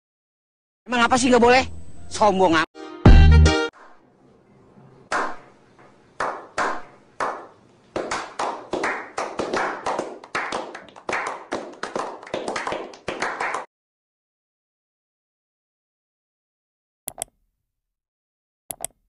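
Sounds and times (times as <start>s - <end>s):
group of men clapping: 5.1s - 5.4s, 6.2s - 13.7s.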